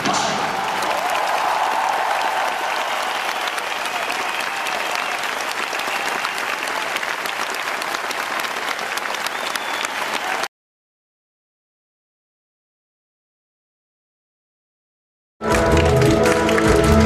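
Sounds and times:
audience applauding: 0:00.0 - 0:10.5, 0:15.4 - 0:17.0.

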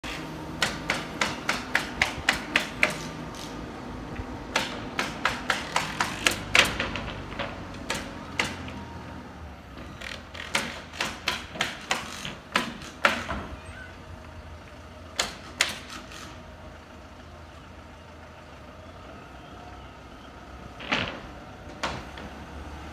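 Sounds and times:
nails driven into plywood: 0:00.6 - 0:03.6, 0:04.5 - 0:08.8, 0:10.0 - 0:13.6, 0:15.2 - 0:16.4.

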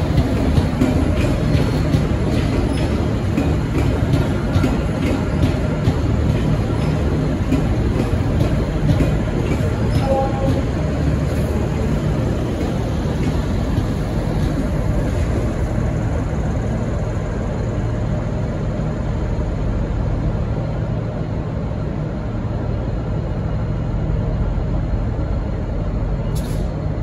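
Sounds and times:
diesel locomotive idling: 0:00.0 - 0:27.0
diesel railcar moving: 0:00.0 - 0:27.0.

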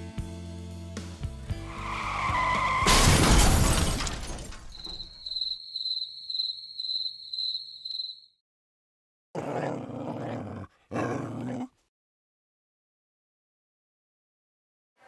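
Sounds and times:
tyre squeal: 0:01.7 - 0:03.0
loud crash: 0:02.4 - 0:05.2
high repeating chirp: 0:04.8 - 0:08.3.

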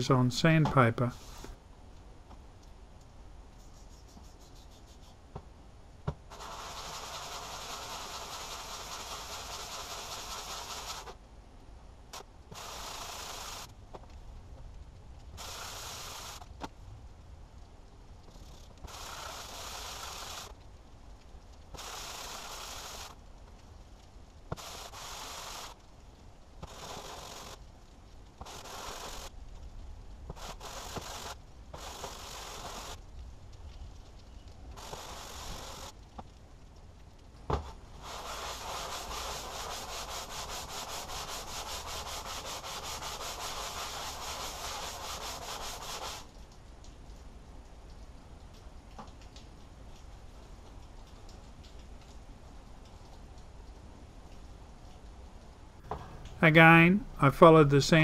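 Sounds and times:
metal rasping on sandpaper: 0:03.6 - 0:05.2, 0:06.3 - 0:11.1, 0:38.0 - 0:46.3.

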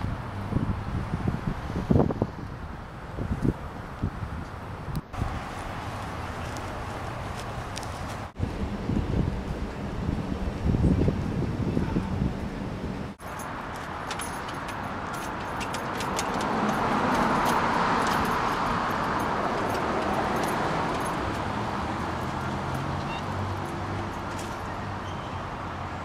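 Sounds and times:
car passing: 0:13.1 - 0:26.0.

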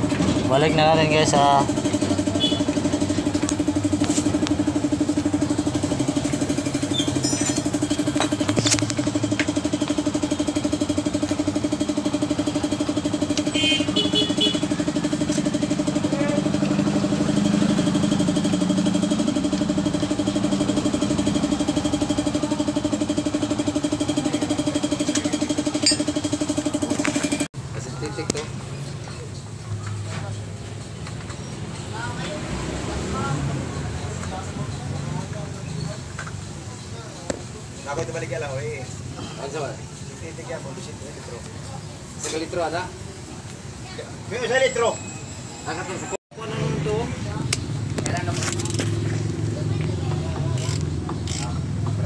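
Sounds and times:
engine idling: 0:00.0 - 0:27.5.

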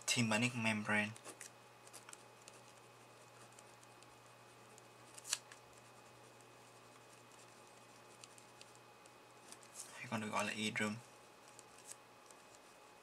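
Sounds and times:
pen scratching on paper: 0:01.2 - 0:09.9, 0:11.0 - 0:13.0.

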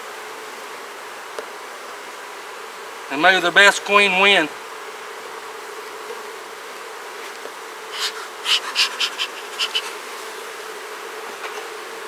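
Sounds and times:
bee colony humming: 0:00.0 - 0:12.0
bee smoker bellows puffs: 0:05.3 - 0:12.0.

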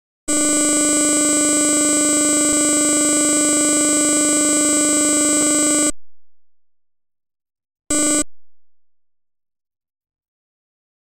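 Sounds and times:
loud electronic buzzing tone: 0:00.3 - 0:06.0, 0:07.9 - 0:08.4.

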